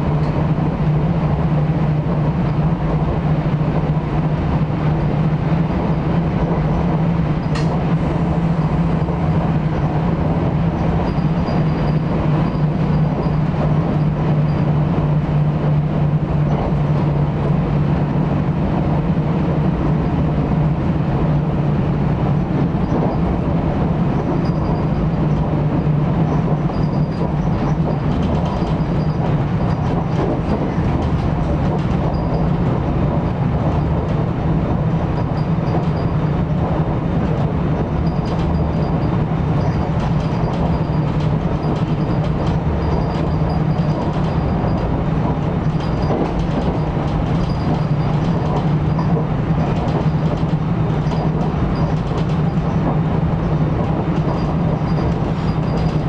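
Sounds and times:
train wheels rumbling on rail: 0.0s - 56.0s
sharp click: 7.5s - 7.8s.

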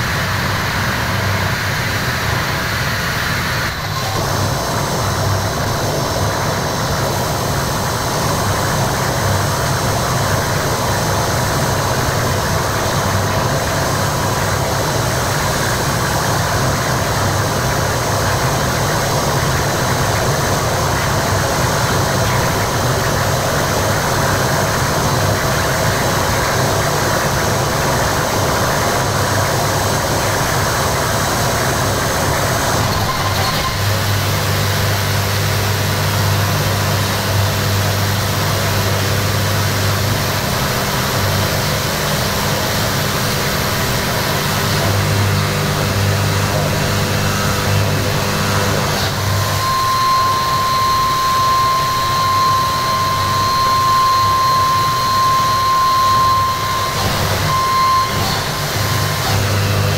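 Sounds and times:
distorted noise drone: 0.0s - 59.9s.

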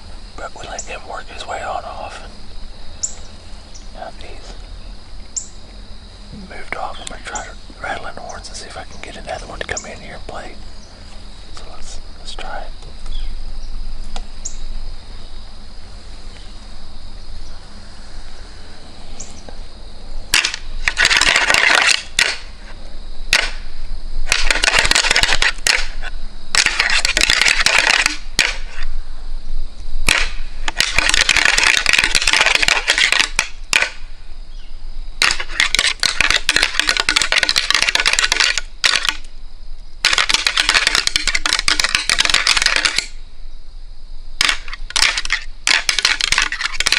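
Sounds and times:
antlers clashing and clicking: 20.3s - 22.5s, 24.3s - 28.8s, 30.1s - 34.0s, 35.2s - 39.3s, 40.0s - 43.2s, 44.4s - 46.9s.

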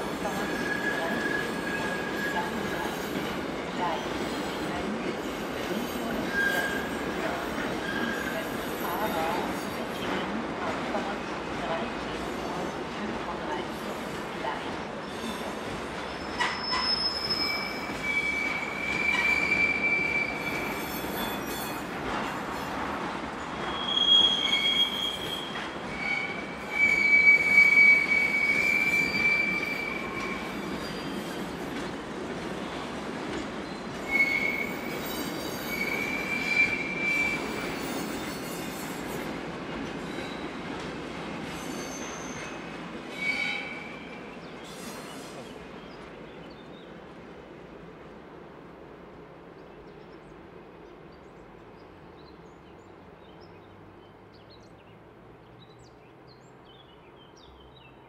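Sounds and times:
train wheels squealing: 0.0s - 10.2s, 15.0s - 22.8s, 23.5s - 31.7s, 33.6s - 39.4s, 40.0s - 40.6s, 41.4s - 45.6s
freight train rolling: 0.0s - 54.3s.

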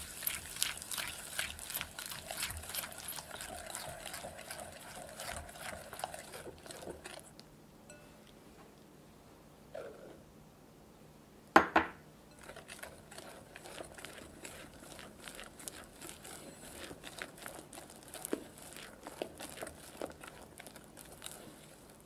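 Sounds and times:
whisk beating in glass bowl: 0.0s - 7.3s, 12.3s - 21.6s.

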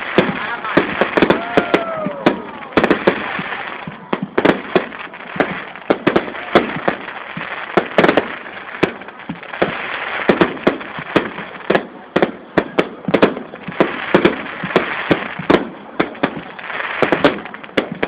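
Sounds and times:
fireworks bangs: 0.0s - 18.0s
fireworks crackle: 0.0s - 18.0s.

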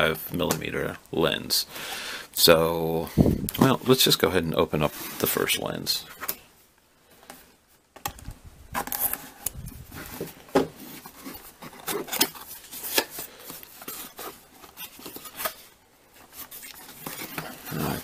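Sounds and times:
cardboard packaging being opened: 8.8s - 18.0s.

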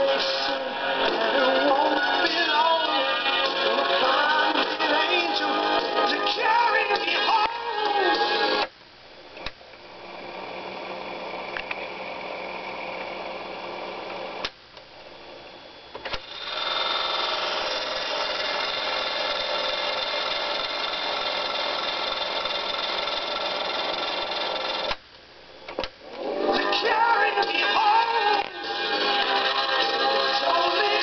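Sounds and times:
tape recorder motor whirring: 10.3s - 31.0s.

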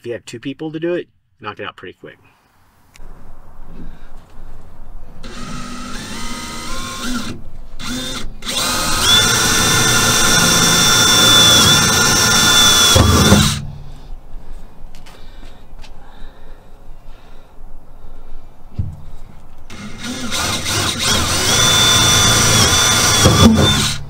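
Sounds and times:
cordless drill drilling into metal: 5.2s - 13.6s, 19.7s - 24.0s
low thump: 18.7s - 19.1s.

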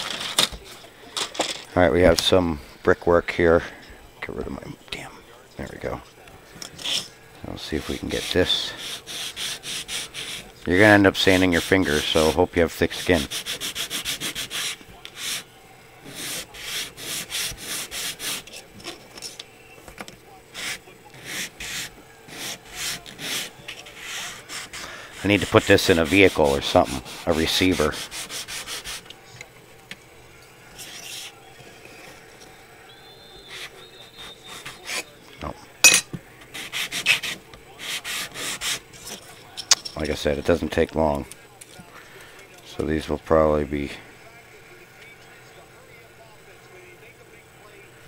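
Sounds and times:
plastic rasping on sandpaper: 7.8s - 10.5s, 12.9s - 15.5s, 16.1s - 18.6s, 20.6s - 29.1s, 36.5s - 38.8s.

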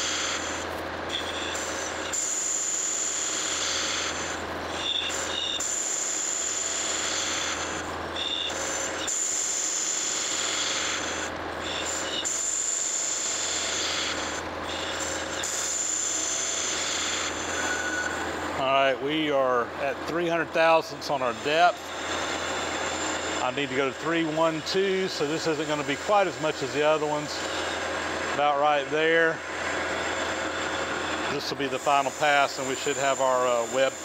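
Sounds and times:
short high squeals: 0.0s - 18.6s
lathe cutting hiss and whine: 0.0s - 34.0s
lathe motor hum: 0.0s - 34.0s.

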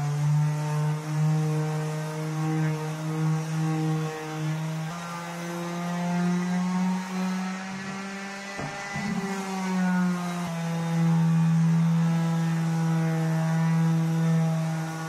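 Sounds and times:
electric sander humming: 0.0s - 15.0s
wooden board knock: 7.9s - 9.3s.

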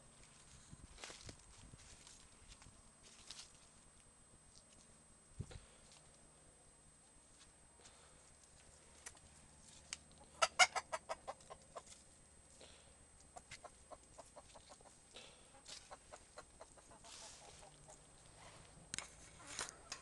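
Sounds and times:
chickens clucking: 10.1s - 12.1s, 13.2s - 18.7s, 19.3s - 20.0s.

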